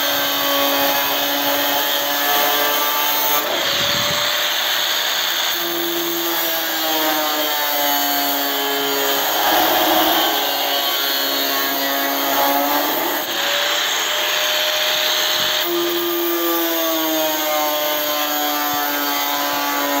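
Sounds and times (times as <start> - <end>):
angle grinder cutting steel: 0.1 - 19.9.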